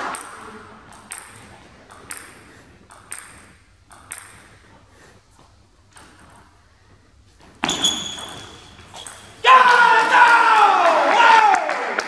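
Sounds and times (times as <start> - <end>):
table tennis ball clicking: 0.1 - 4.5.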